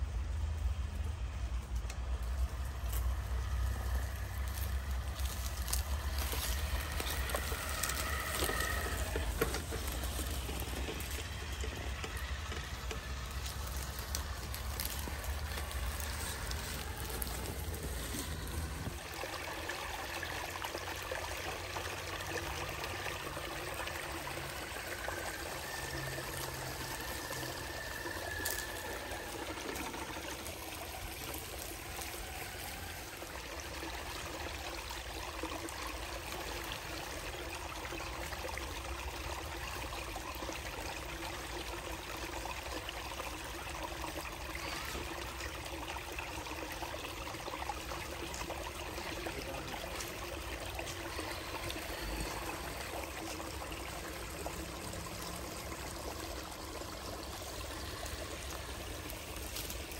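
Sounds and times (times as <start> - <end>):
creek trickling over rocks: 0.0 - 59.9.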